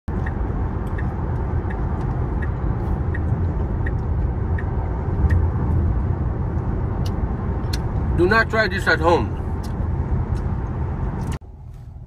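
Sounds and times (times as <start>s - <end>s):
light ticking: 0.1s - 5.5s
road and tyre noise in car: 0.1s - 12.0s.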